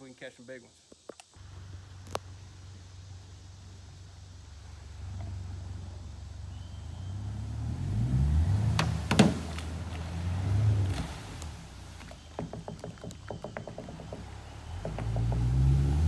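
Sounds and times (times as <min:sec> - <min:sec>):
outboard motor revving: 0:04.9 - 0:16.0.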